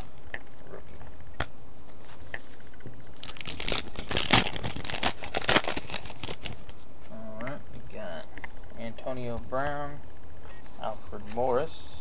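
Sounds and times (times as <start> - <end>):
foil wrapper crinkling and ripping: 3.2 - 6.8.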